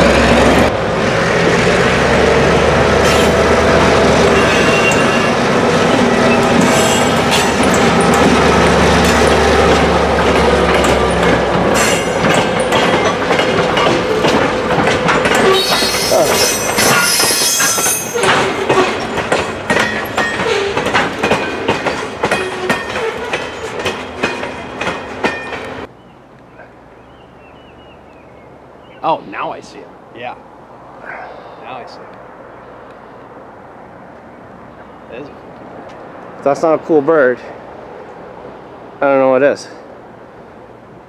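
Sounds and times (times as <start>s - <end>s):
quiet outdoor background: 0.2s - 41.0s
train wheels clacking: 3.0s - 25.9s
high wheel squeal: 4.2s - 9.4s, 15.3s - 19.1s, 19.9s - 21.7s.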